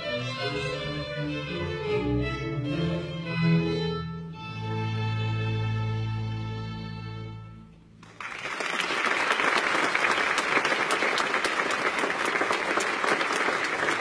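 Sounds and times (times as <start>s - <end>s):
audience applauding: 8.0s - 14.0s.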